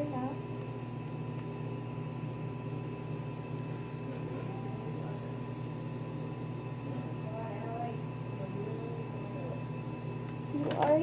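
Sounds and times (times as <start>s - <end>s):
low room tone hum: 0.0s - 11.0s
thin constant high tone: 3.0s - 10.2s.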